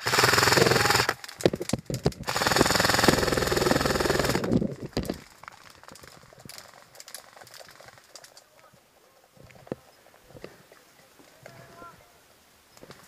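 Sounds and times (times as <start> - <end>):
airsoft rifle firing bursts: 0.0 - 1.2, 2.3 - 4.5.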